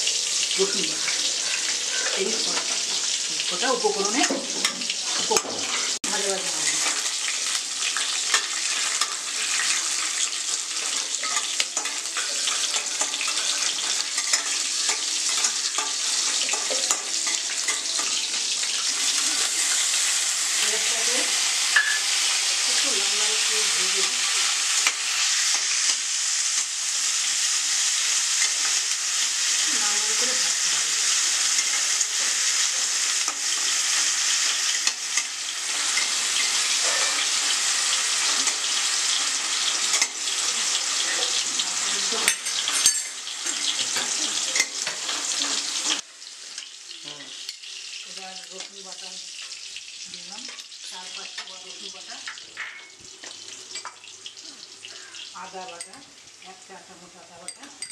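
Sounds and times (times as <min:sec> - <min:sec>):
paste sizzling in hot oil: 0:00.0 - 0:57.8
metal spatula scraping a pan: 0:00.8 - 0:26.0, 0:28.2 - 0:46.7.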